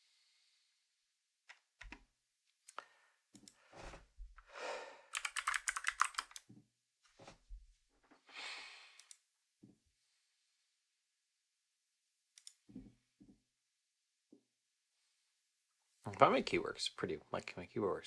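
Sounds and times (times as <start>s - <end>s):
mechanical keyboard typing: 5.1s - 6.5s.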